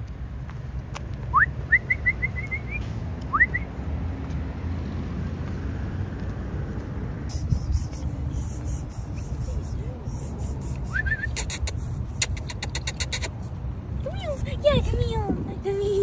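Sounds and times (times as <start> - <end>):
person whistling: 1.3 - 3.7, 7.3 - 11.5
steady low rumble: 4.2 - 16.0.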